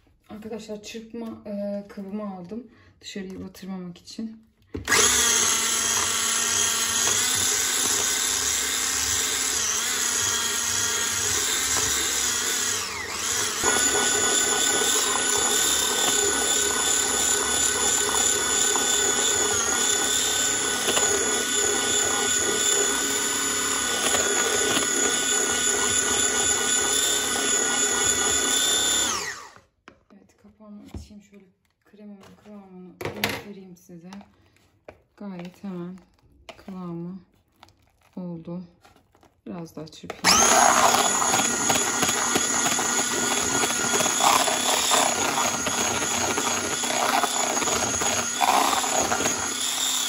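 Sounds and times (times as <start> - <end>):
electric hand mixer whining: 4.8 - 29.7, 40.2 - 50.0.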